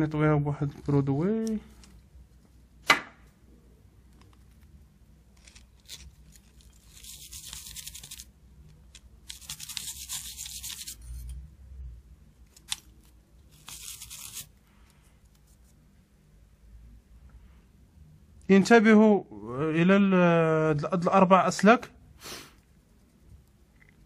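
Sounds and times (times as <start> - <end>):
toothbrush scrubbing circuit board: 5.4 - 8.3, 9.2 - 11.3, 13.5 - 14.5.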